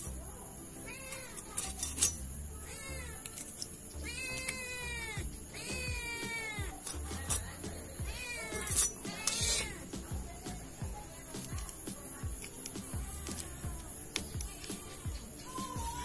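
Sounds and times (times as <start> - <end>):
cat meowing: 0.8 - 1.7, 2.5 - 9.8
fish scales scraping on blade: 1.1 - 2.3, 5.7 - 9.8.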